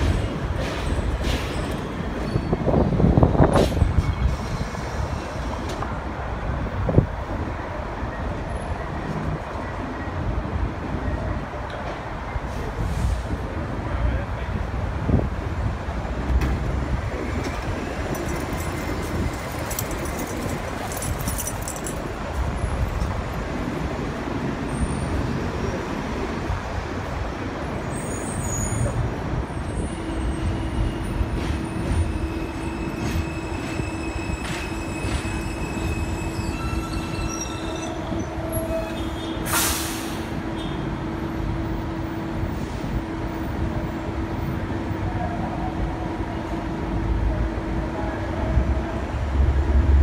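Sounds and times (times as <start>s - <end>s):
train low rumble: 0.0s - 50.0s.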